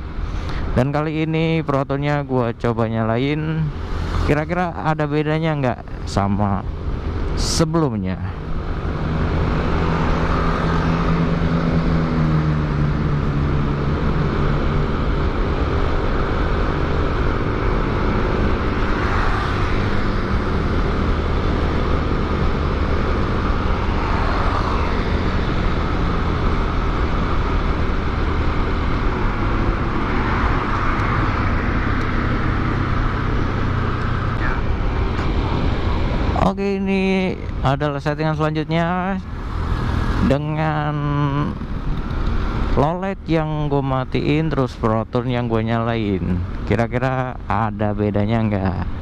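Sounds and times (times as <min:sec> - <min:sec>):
road noise: 0:00.0 - 0:49.0
rushing wind: 0:02.9 - 0:07.4, 0:08.1 - 0:37.7, 0:39.2 - 0:44.8
motorcycle engine running: 0:08.4 - 0:36.2.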